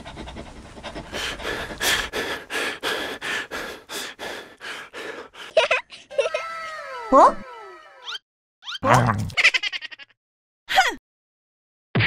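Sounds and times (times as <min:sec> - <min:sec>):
gasping sobbing breaths: 0:00.9 - 0:08.0.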